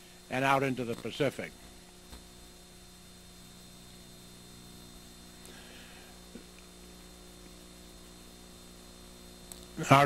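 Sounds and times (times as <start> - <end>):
faint mains hum: 0.0 - 10.0
small click: 9.4 - 9.7.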